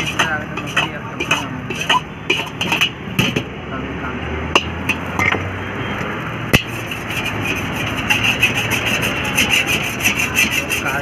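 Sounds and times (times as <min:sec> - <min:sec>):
metal ladle clinking on wok: 0:00.0 - 0:03.0
rhythmic metal scraping: 0:00.0 - 0:03.4, 0:06.5 - 0:11.0.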